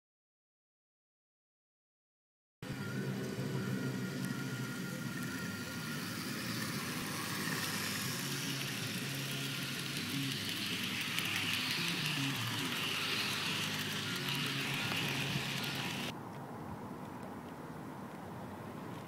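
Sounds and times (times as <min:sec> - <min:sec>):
model train motor hum: 0:02.6 - 0:16.1
wheels ticking on rail: 0:02.6 - 0:16.2.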